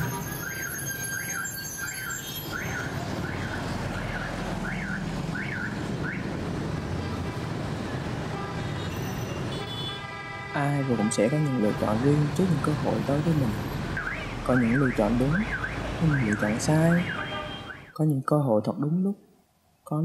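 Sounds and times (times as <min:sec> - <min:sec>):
electronic alarm chirps: 0:00.0 - 0:05.7
bus engine rumbling: 0:00.0 - 0:09.6, 0:10.5 - 0:17.7.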